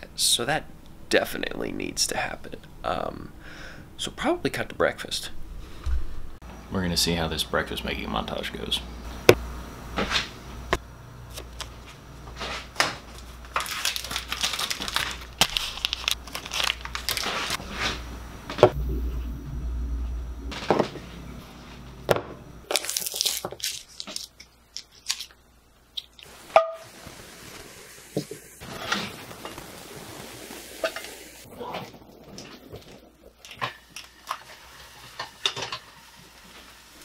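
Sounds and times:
background hum: 0.0 - 37.0
food packaging crinkling and tearing: 11.3 - 17.7, 22.7 - 26.3.

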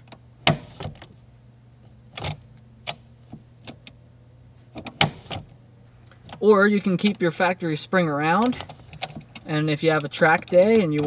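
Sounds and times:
handbrake lever clicks: 2.2 - 4.0, 8.4 - 11.0.

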